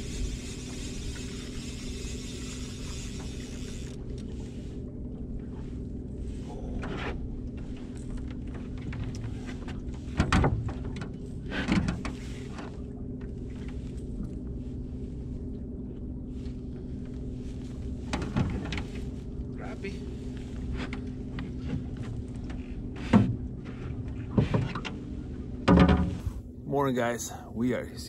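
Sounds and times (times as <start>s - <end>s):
electric trolling motor humming: 0.0s - 6.2s.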